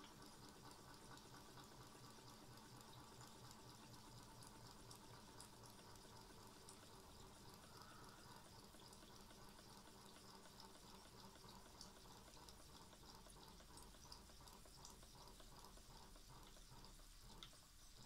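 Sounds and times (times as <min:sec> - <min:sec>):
steam engine hissing and bubbling: 0:00.0 - 0:18.0.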